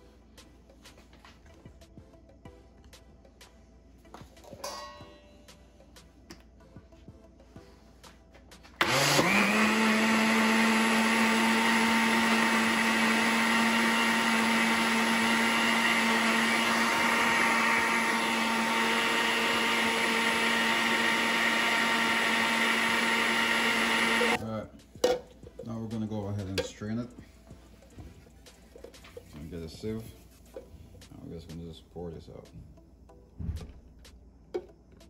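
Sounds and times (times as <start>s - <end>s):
blender motor running: 8.8s - 24.4s.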